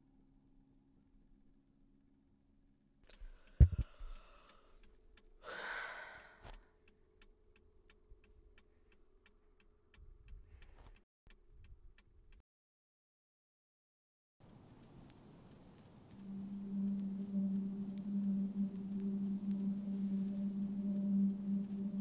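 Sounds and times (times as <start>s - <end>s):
faint steady ticking: 3.1s - 12.4s, 14.4s - 22.0s
woman sighing heavily: 5.4s - 6.4s.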